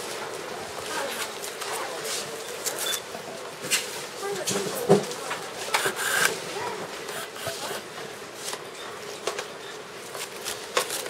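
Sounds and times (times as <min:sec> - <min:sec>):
faint voices: 0:00.1 - 0:08.3.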